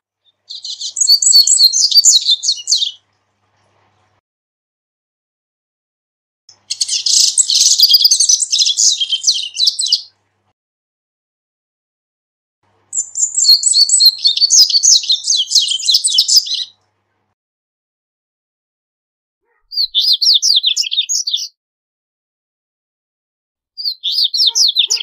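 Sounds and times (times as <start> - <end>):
seedeater twittering song: 0.2 - 3.0, 6.5 - 10.1, 12.9 - 16.8, 23.8 - 25.0.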